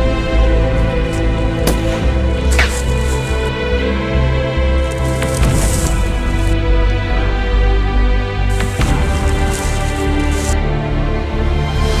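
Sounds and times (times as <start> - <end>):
background music with bass: 0.0 - 12.0
sharp crack: 1.6 - 3.6.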